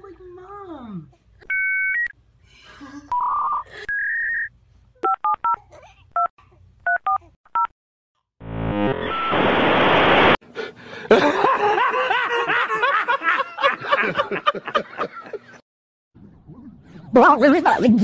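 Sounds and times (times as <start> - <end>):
dial-up modem screeching: 8.6 - 10.4
man laughing loudly: 11.0 - 15.6.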